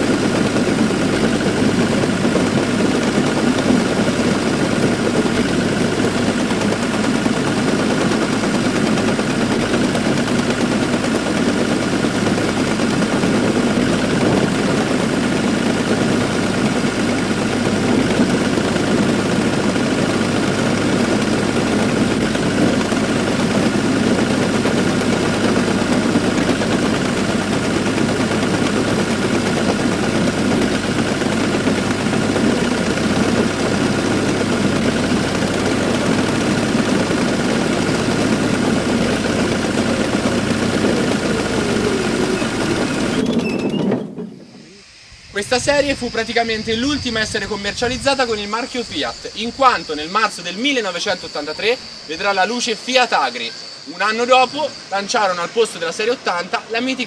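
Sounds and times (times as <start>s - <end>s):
diesel tractor engine running: 0.0s - 57.0s
high-pitched whine: 12.1s - 57.0s.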